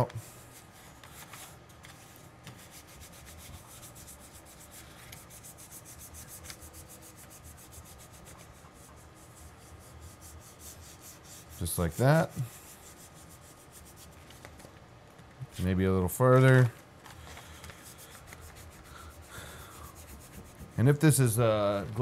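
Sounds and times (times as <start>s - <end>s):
hands rubbing textured sheet: 0.0s - 14.5s, 17.2s - 22.0s.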